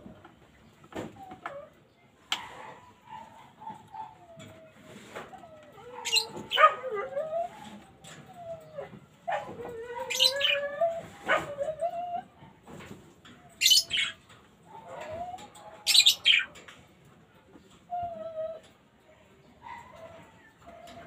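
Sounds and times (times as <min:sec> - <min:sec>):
birds shrieking chirps: 0:02.3 - 0:06.8, 0:09.6 - 0:12.3, 0:13.5 - 0:16.6.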